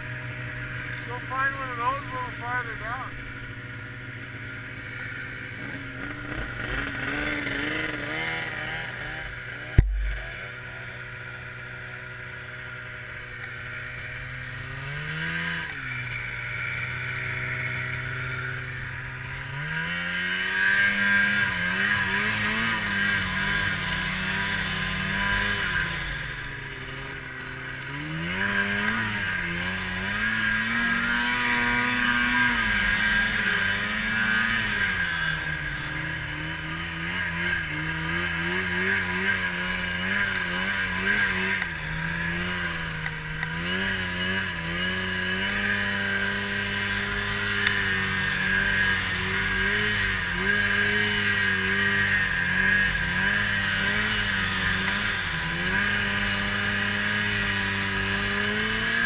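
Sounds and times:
snowmobile engine idling and revving: 0.0 - 59.0
sharp knock: 9.8 - 10.2.

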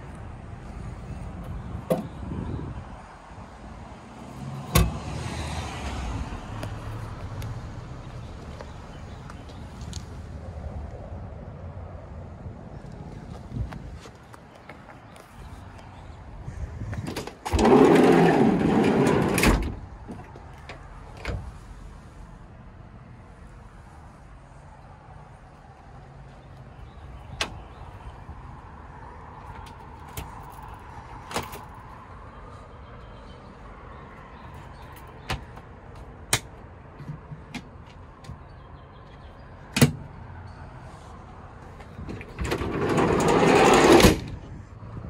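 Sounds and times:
sliding door rolling on track: 17.2 - 19.8, 42.1 - 44.4.

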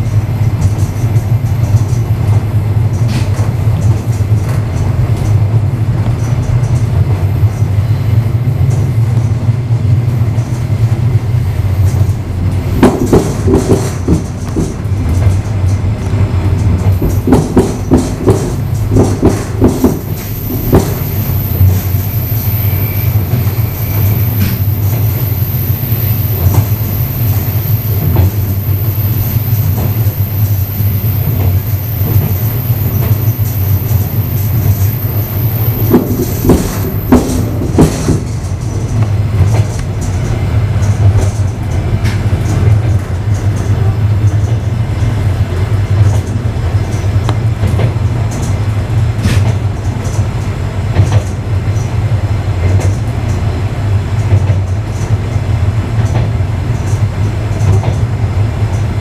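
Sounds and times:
train carriage rumble: 0.0 - 59.0
wheels knocking on rails: 11.8 - 48.6.

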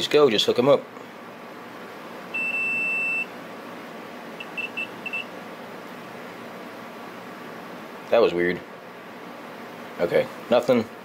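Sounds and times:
multimeter beeps: 2.3 - 3.3, 4.4 - 5.3.

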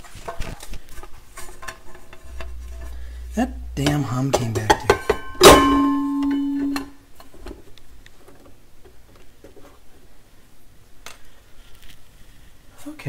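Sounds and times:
metal platter ringing: 1.6 - 7.0.

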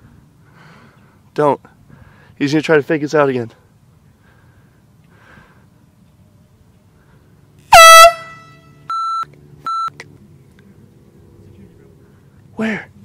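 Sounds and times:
air horn blast: 7.7 - 8.8.

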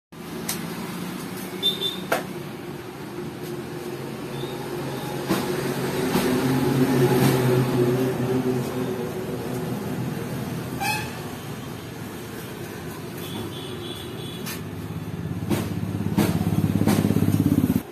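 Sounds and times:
motorcycle engine running: 15.0 - 17.9.

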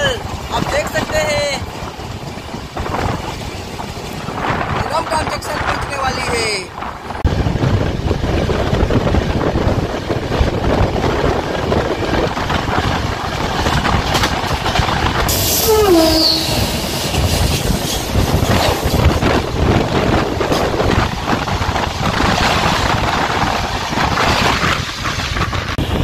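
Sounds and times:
train rumbling and rattling: 0.0 - 26.0
passing train rushing hiss: 15.1 - 21.6.

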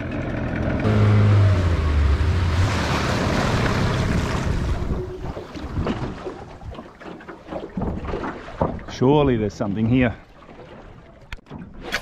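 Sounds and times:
outboard motor drone: 0.0 - 7.7
water rushing past hull: 0.8 - 12.0
water slapping against hull: 2.0 - 12.0
wind on microphone: 3.5 - 6.8.

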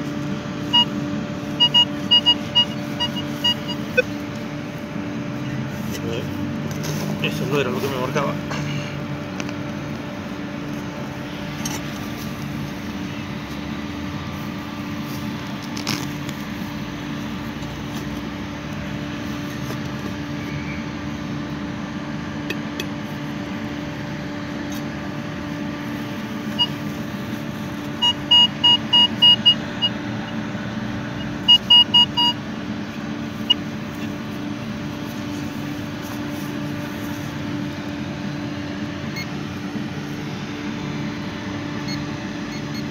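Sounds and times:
steady low hum: 0.0 - 42.9
metal detector beeping: 0.6 - 4.3, 26.0 - 27.2, 27.8 - 30.4, 31.2 - 32.4, 33.3 - 34.2, 39.1 - 39.4, 41.8 - 42.9.

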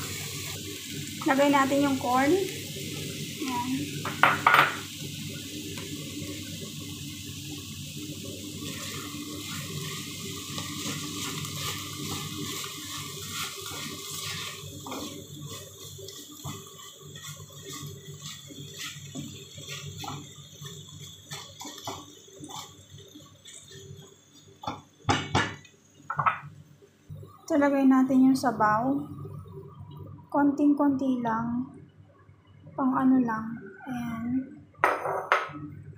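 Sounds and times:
meat sizzling in a frying pan: 0.0 - 26.7
knocks on a pan: 4.0 - 4.8, 25.1 - 26.4
spatula scraping a pan: 10.5 - 22.8.

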